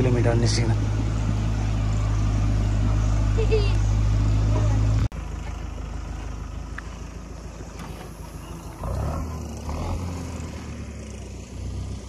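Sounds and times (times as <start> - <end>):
tractor diesel engine droning: 0.0 - 12.0.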